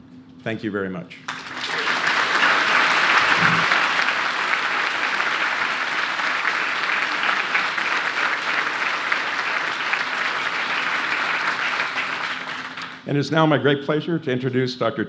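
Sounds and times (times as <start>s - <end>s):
audience applauding: 1.3s - 13.1s.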